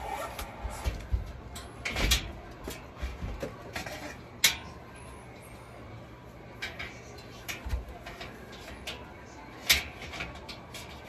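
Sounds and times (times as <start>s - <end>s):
steel shelving clanks and knocks: 0.0s - 4.8s.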